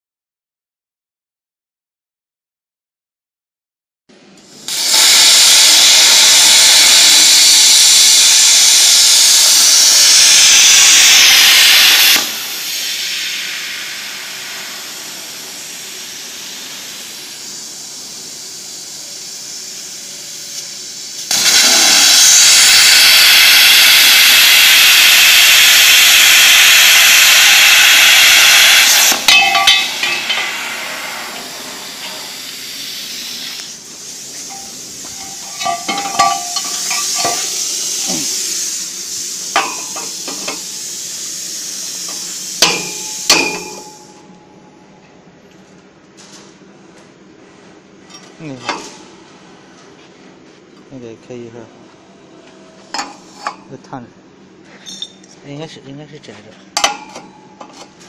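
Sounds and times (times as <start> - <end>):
plasma arc hissing: 4.6 - 44.1.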